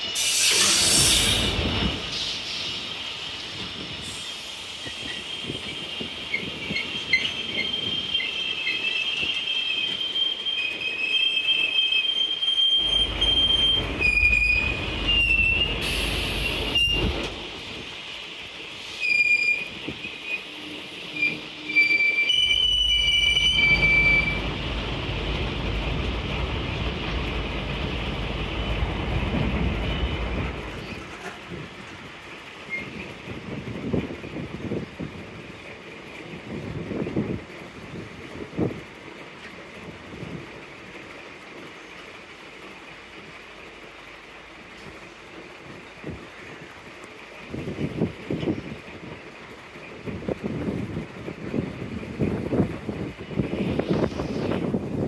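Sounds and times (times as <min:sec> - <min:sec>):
train wheels squealing: 0:00.0 - 0:17.3, 0:18.8 - 0:24.5, 0:32.6 - 0:33.1
low train rumble: 0:00.0 - 0:55.0.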